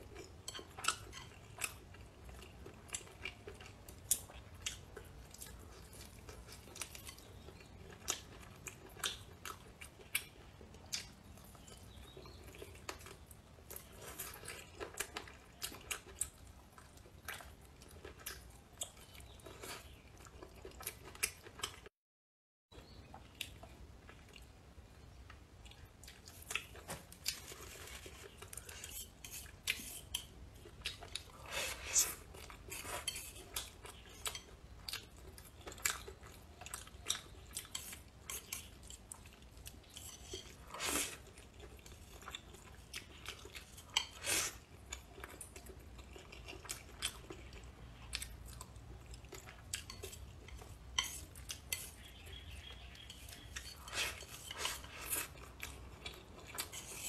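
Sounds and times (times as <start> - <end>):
chewing and mouth smacks: 32.1 - 57.0.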